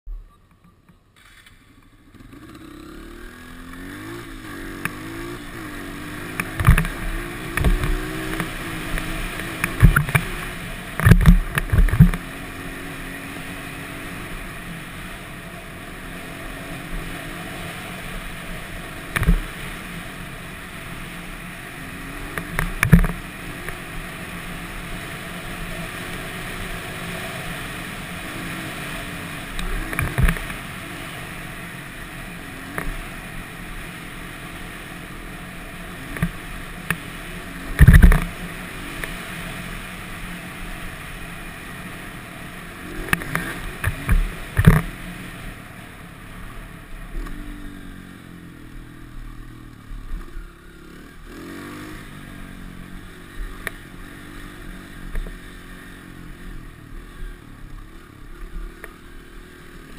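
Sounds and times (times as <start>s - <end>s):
off-road vehicle engine cruising: 0.1s - 59.9s
sharp thumps over bumps: 4.7s - 5.2s, 6.2s - 12.3s, 19.1s - 19.7s, 22.3s - 23.8s, 29.6s - 30.7s, 36.1s - 37.1s, 37.7s - 38.4s, 43.0s - 45.1s
wind noise on microphone: 37.8s - 38.2s.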